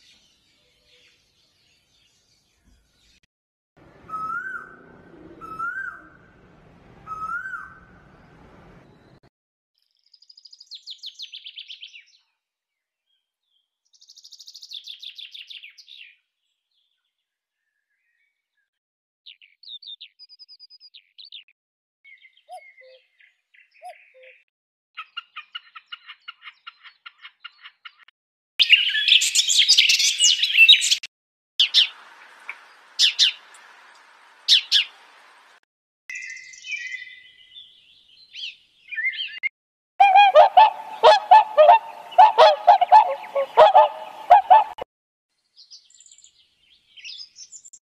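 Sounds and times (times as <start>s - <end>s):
bird chirps and calls: 10.0s - 12.2s, 13.5s - 16.2s, 22.1s - 24.4s, 25.0s - 31.9s, 32.5s - 33.5s, 34.5s - 34.9s, 36.1s - 44.8s, 45.6s - 47.8s.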